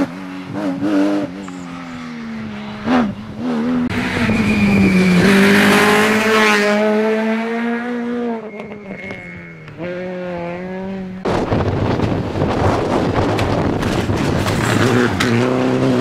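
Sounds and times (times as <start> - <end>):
rally car approaching: 0.0 - 16.0
rally car engine at high revs: 0.0 - 16.0
loud rushing noise: 2.1 - 7.4, 11.2 - 16.0.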